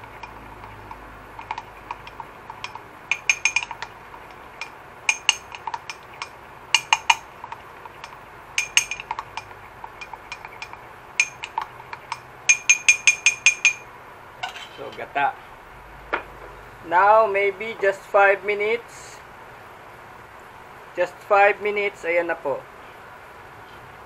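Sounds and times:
metal spoon clinking in cup: 0:00.7 - 0:07.3, 0:08.0 - 0:14.9.

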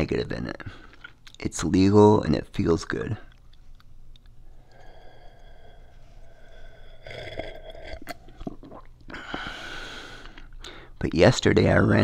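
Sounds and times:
man sipping and swallowing: 0:03.3 - 0:10.8
breathy hiss: 0:04.4 - 0:08.4, 0:09.1 - 0:11.0.

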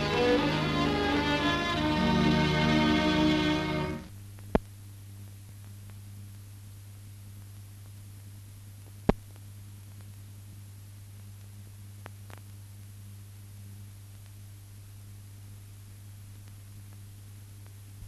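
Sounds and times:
faint hiss: 0:00.0 - 0:18.0
faint ticks: 0:05.5 - 0:06.4, 0:11.1 - 0:12.9, 0:14.1 - 0:14.4.

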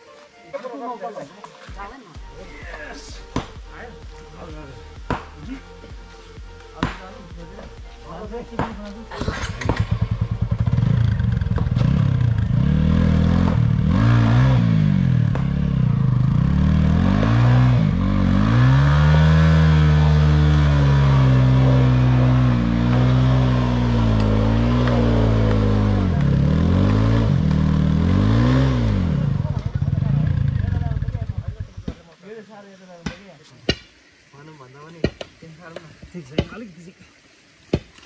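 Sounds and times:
motorcycle engine revving hard: 0:09.1 - 0:31.8.

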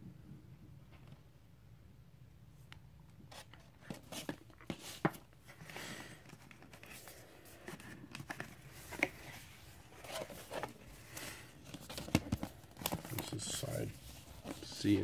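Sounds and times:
cardboard record sleeves rustling: 0:03.3 - 0:15.0.

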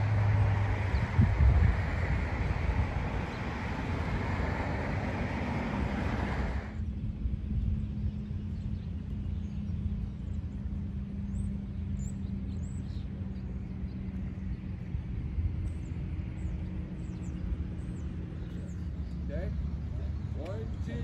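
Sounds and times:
constant hum: 0:00.0 - 0:21.0
steady low rumble: 0:00.0 - 0:21.0.

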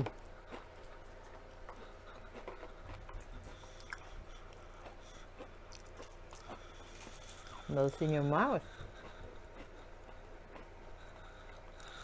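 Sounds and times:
chewing crunchy food: 0:00.0 - 0:12.0
low hum: 0:00.0 - 0:12.0.

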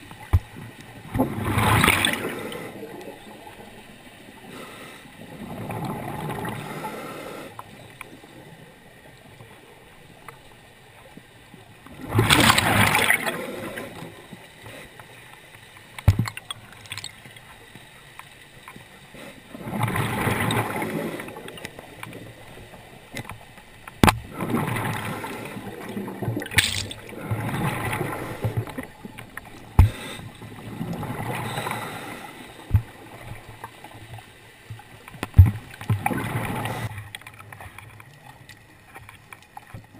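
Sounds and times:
exhaled bubbles rushing underwater: 0:00.0 - 0:04.4, 0:05.2 - 0:07.3, 0:11.6 - 0:14.4, 0:19.5 - 0:23.0, 0:24.0 - 0:34.2, 0:35.4 - 0:37.7.

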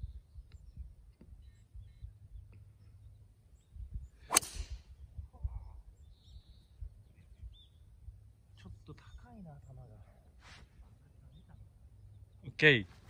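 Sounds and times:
golf driver striking ball: 0:04.3 - 0:04.8.

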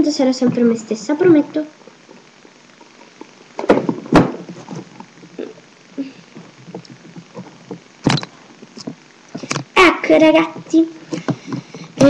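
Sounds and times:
sharp thumps: 0:03.2 - 0:05.5, 0:06.3 - 0:09.8.

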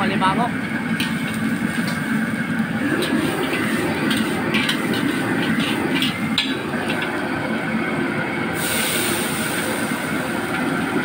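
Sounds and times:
gas burner roaring: 0:00.0 - 0:11.0
metal spatula scraping a wok: 0:01.0 - 0:02.2, 0:02.8 - 0:07.1
high hiss: 0:08.6 - 0:10.5.

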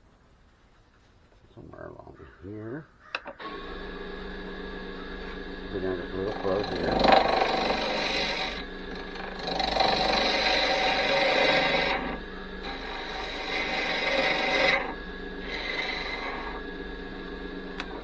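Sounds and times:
lathe tool scraping wood: 0:03.4 - 0:18.0
wood lathe running: 0:03.4 - 0:18.0.

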